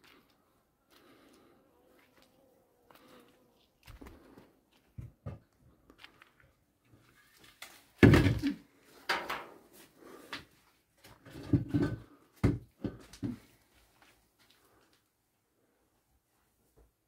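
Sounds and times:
objects knocking and scraping: 8.0s - 9.6s, 11.0s - 13.5s.

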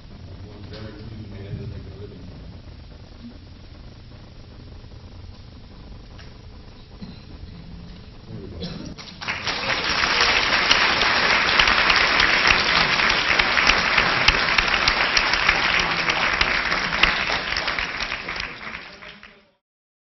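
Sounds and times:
audience applauding: 9.0s - 19.6s.

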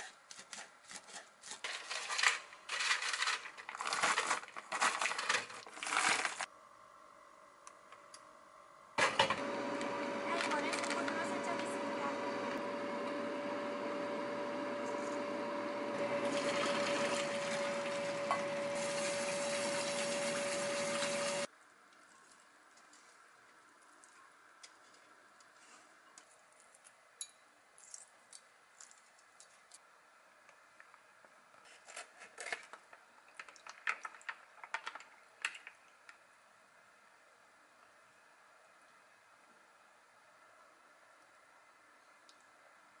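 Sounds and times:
kitchen tap running: 15.9s - 21.5s.

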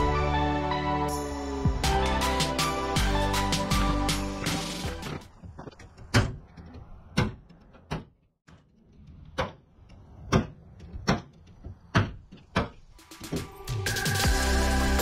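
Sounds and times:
hammer striking nails into wood: 10.2s - 12.8s.

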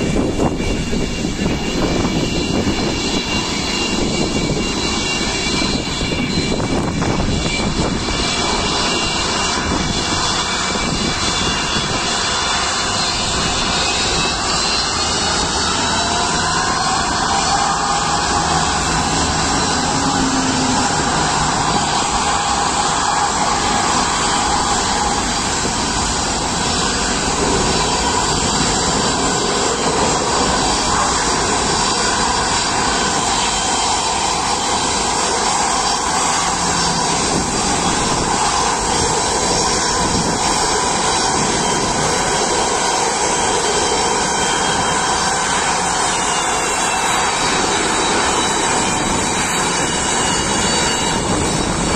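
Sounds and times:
jet engines whining: 0.0s - 51.9s.

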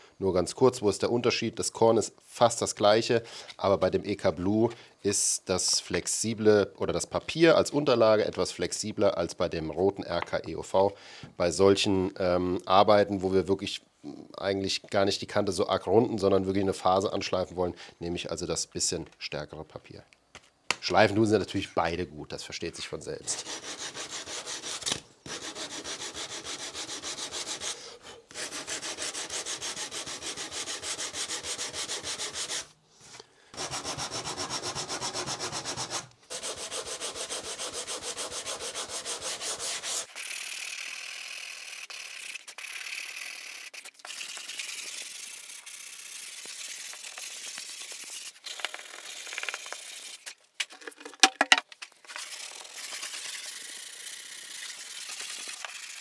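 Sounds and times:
sandpaper rubbing wood: 23.2s - 32.8s, 33.6s - 40.4s, 41.7s - 50.4s, 52.1s - 56.0s.

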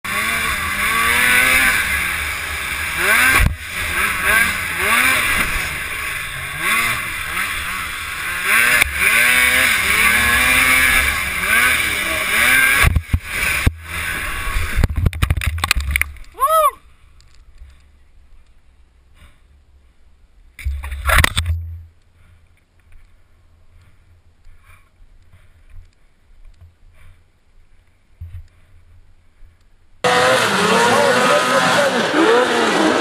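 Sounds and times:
snowmobile engine revving: 0.0s - 15.0s, 30.0s - 33.0s
wind and track noise: 0.1s - 16.4s.

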